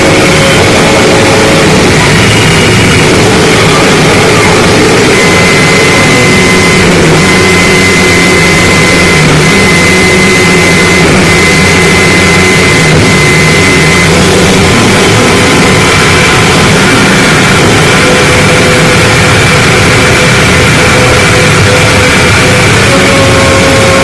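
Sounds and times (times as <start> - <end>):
distorted noise music: 0.0 - 24.0.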